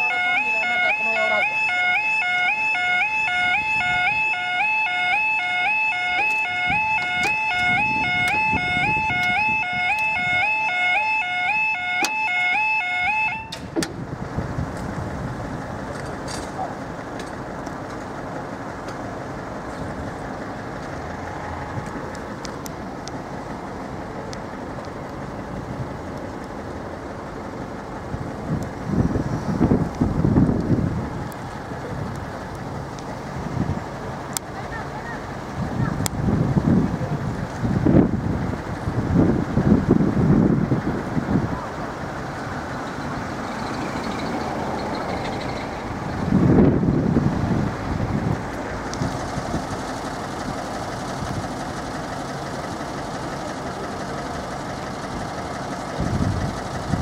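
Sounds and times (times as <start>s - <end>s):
level crossing alarm: 0.0s - 13.7s
road traffic noise: 0.0s - 57.0s
vehicle engines idling and passing: 0.0s - 57.0s
wind on microphone: 28.2s - 34.0s, 35.5s - 41.9s, 45.8s - 49.8s, 56.0s - 57.0s.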